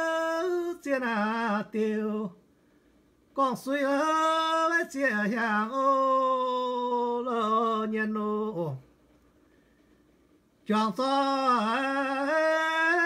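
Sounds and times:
man chant-singing unaccompanied: 0:00.0 - 0:02.4, 0:03.4 - 0:08.9, 0:10.6 - 0:13.0.

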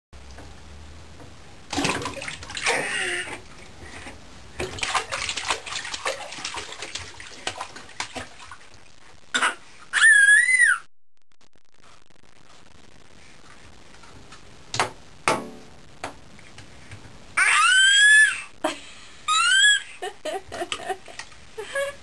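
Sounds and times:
hands slapping bath water: 0:01.7 - 0:03.4, 0:04.6 - 0:08.8
baby high-pitched squeal: 0:09.9 - 0:10.9, 0:17.4 - 0:18.5, 0:19.3 - 0:19.9.

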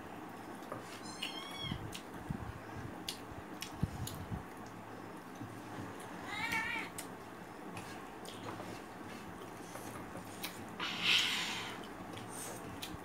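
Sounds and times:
breathy hiss: 0:10.8 - 0:12.7.

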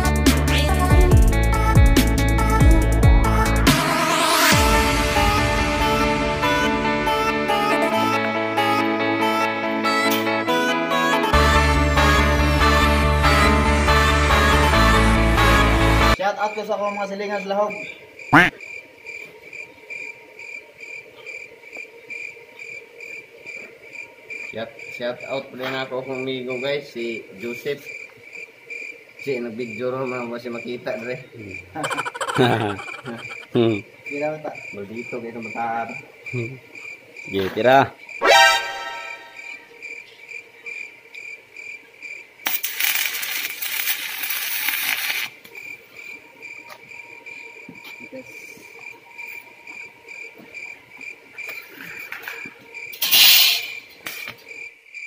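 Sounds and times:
crickets chirping: 0:00.0 - 0:55.0
arc welding crackling: 0:42.4 - 0:45.7.

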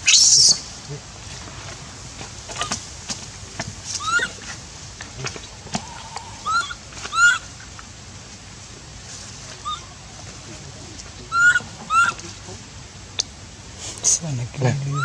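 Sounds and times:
baby monkey crying: 0:04.0 - 0:04.4, 0:05.5 - 0:07.4, 0:09.6 - 0:10.3, 0:11.3 - 0:12.2.

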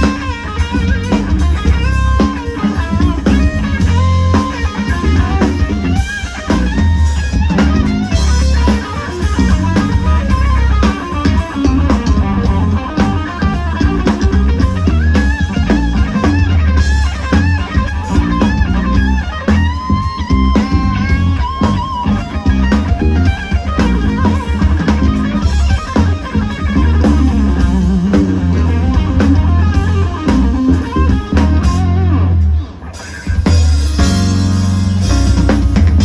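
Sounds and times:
bass and drums: 0:00.0 - 0:36.0
electric guitar melody: 0:00.0 - 0:36.0.

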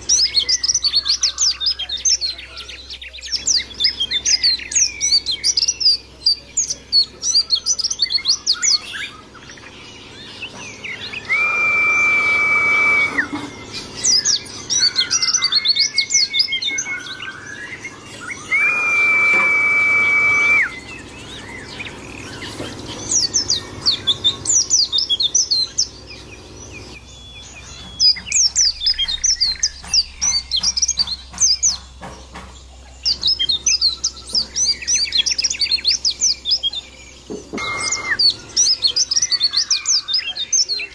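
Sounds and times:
bird twittering chirps: 0:00.0 - 0:40.9
long flat whistled note: 0:11.3 - 0:13.5, 0:18.5 - 0:20.8, 0:37.6 - 0:38.2.

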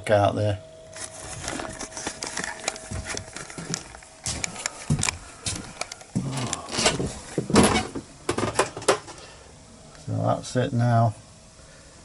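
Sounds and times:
footsteps on wooden floor: 0:02.8 - 0:08.0.

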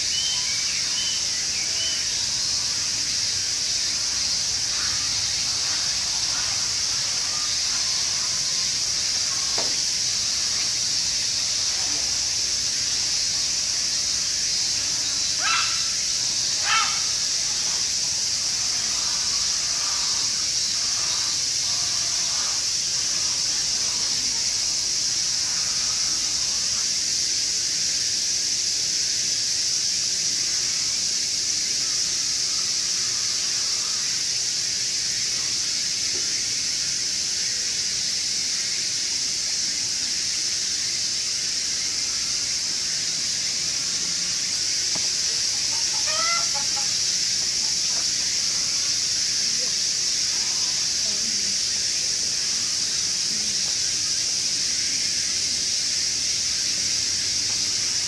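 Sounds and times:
steady high-pitched hiss: 0:00.0 - 0:58.0
monkey high calls: 0:15.1 - 0:24.3, 0:45.0 - 0:49.0.

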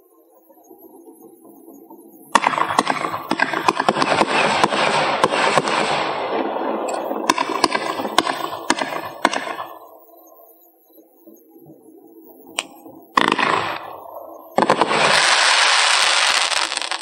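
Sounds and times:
fireworks hiss: 0:02.4 - 0:09.9, 0:13.2 - 0:17.0
fireworks sharp reports: 0:02.4 - 0:10.0, 0:13.2 - 0:17.0.

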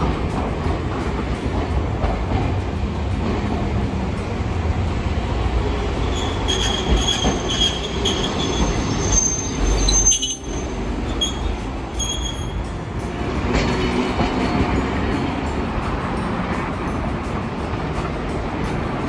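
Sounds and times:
streetcar wheels rumbling on rails: 0:00.0 - 0:19.0
high-pitched wheel squeals: 0:06.0 - 0:13.0.

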